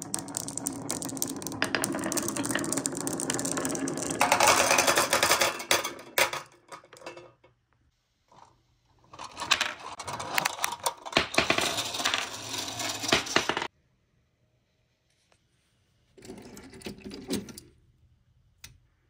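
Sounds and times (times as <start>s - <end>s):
marbles clattering into tin truck: 0.0s - 7.3s, 9.2s - 13.7s.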